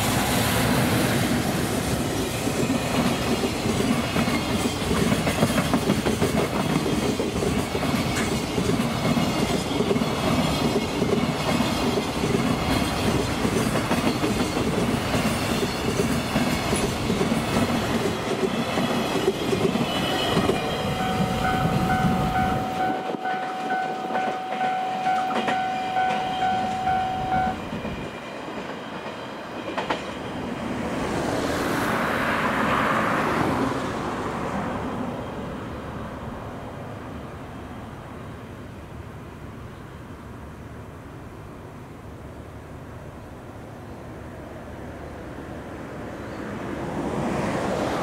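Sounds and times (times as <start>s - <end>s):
rushing noise: 0.0s - 6.1s
freight train rumbling past: 0.0s - 48.0s
level crossing warning bell: 20.0s - 27.7s.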